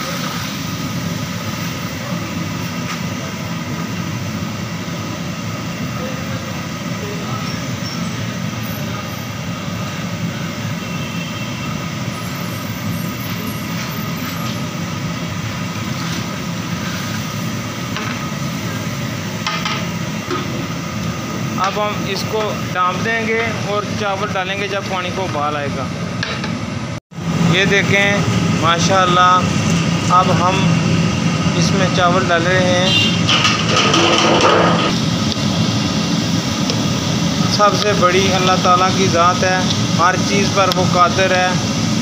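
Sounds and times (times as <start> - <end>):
gas burner rushing: 0.0 - 42.0.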